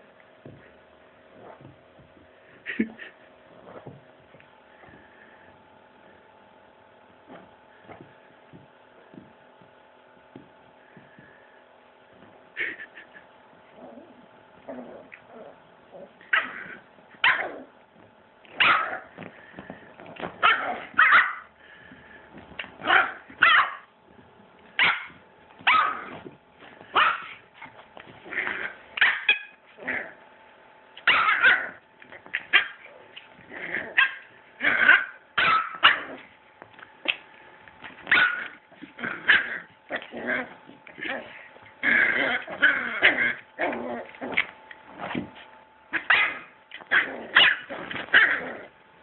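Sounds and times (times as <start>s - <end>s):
puppies barking: 18.6s - 19.1s, 20.4s - 21.5s, 22.8s - 23.9s, 24.8s - 26.2s, 26.9s - 27.5s, 29.0s - 29.6s, 31.0s - 31.8s, 32.4s - 32.9s, 33.9s - 36.2s, 38.0s - 38.6s, 45.9s - 48.5s.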